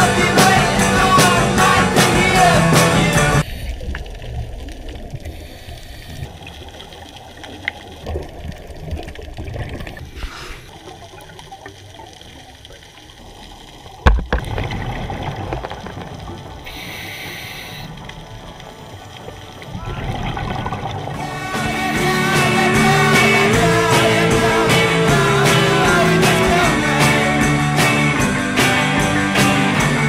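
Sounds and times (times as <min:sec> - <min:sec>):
muffled underwater water rush: 0:00.0 - 0:29.1
short hiss: 0:16.7 - 0:17.9.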